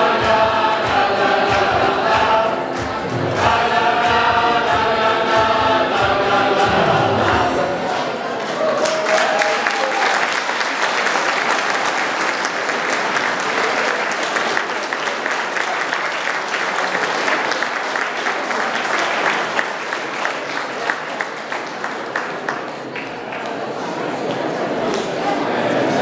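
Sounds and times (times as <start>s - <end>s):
choir holding a note: 0.0s - 8.3s
audience applauding: 7.8s - 23.9s.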